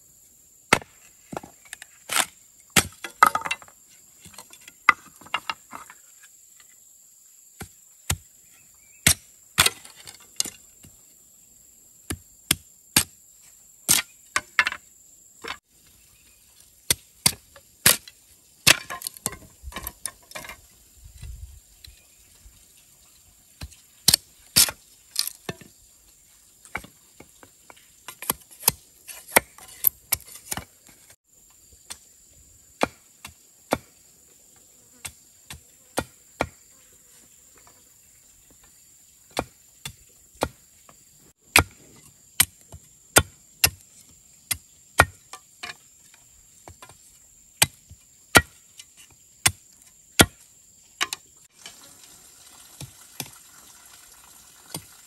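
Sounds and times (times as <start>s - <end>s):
machete chopping bamboo: 0.7s - 3.6s, 9.0s - 10.6s, 18.7s - 19.9s, 41.5s - 42.6s, 43.2s - 43.8s, 44.5s - 45.8s, 47.6s - 48.6s, 49.4s - 50.4s.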